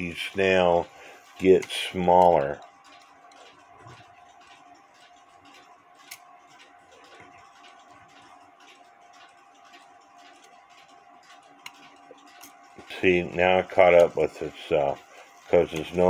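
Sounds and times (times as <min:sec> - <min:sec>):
clock mechanism ticking and clicking: 0:00.0 - 0:16.0.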